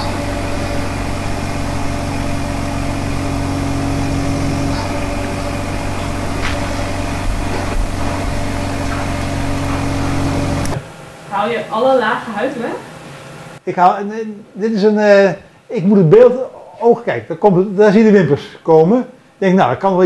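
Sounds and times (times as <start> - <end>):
machine hum: 0.0 - 13.6.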